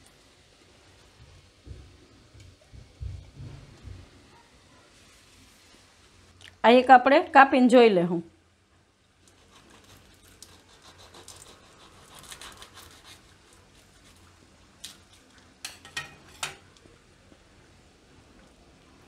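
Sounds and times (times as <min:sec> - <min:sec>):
knife cutting crisp pastry: 0:09.2 - 0:16.5.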